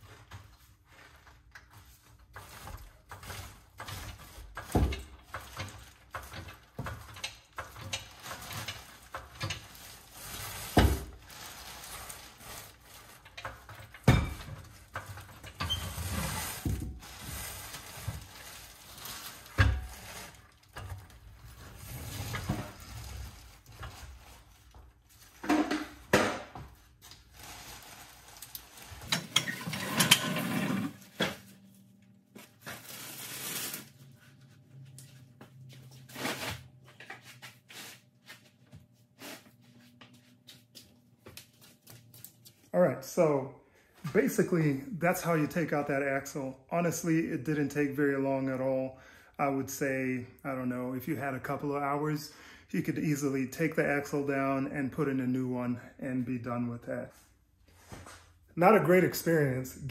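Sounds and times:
metal clanks and knocks: 25.4 - 26.6
floor jack rolling on concrete: 28.8 - 31.4.

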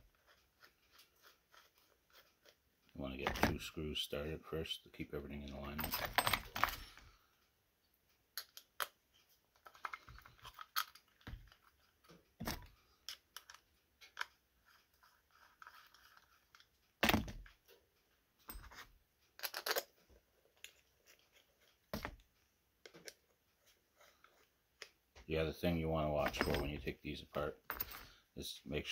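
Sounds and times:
small parts clicking and knocking: 5.4 - 7.5, 8.1 - 23.3, 26.2 - 28.2.

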